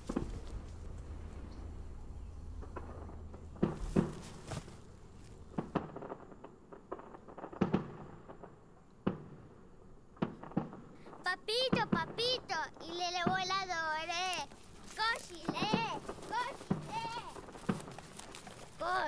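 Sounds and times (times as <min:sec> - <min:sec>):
faint low hum: 0:00.0 - 0:06.8
dull thumps and pops: 0:02.8 - 0:06.2.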